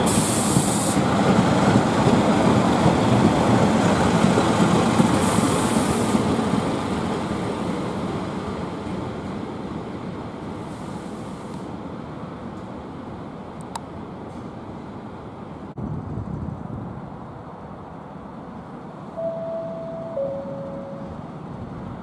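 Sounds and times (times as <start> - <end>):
brief hiss: 0.0 - 1.0
train engine rumble: 0.0 - 22.0.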